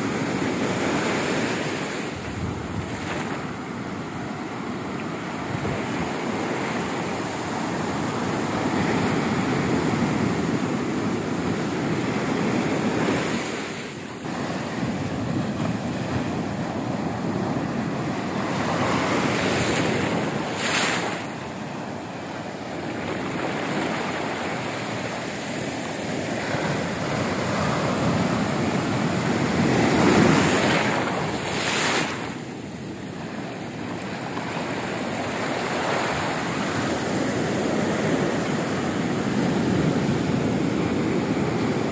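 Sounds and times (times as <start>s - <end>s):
wind buffeting microphone: 0.0s - 13.6s
waves breaking on sand: 0.0s - 41.9s.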